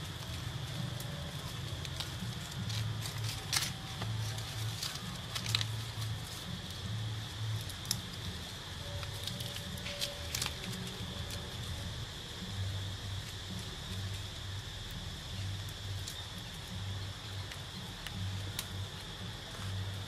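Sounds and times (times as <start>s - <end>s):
light clicks and crackles: 0.0s - 11.8s
high insect drone: 0.0s - 20.0s.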